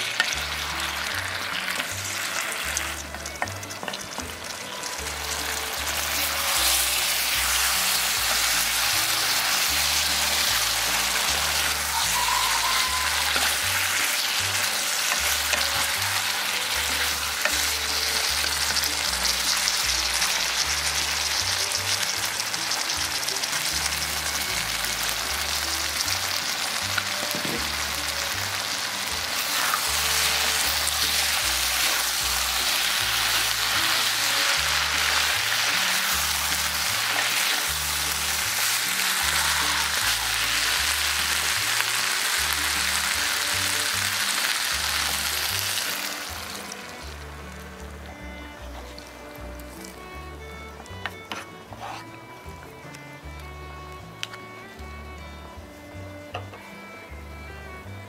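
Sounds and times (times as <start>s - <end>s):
food sizzling in a wok: 0.0s - 53.4s
wooden spatula stirring: 50.7s - 52.7s.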